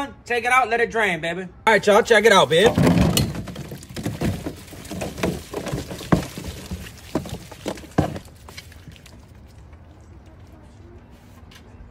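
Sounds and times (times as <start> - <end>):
food tumbling onto a tray: 2.5 - 8.3.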